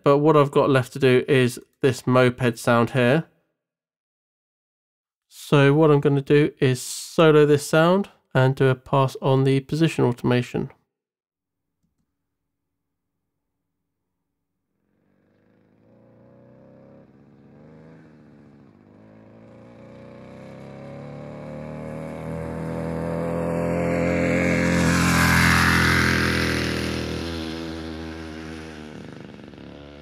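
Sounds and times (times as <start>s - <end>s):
moped engine passing by: 14.9s - 30.0s.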